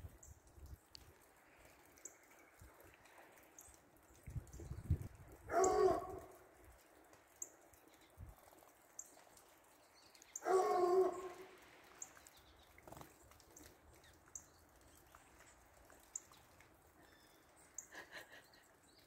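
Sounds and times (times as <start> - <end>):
dog baying: 10.4 - 11.5.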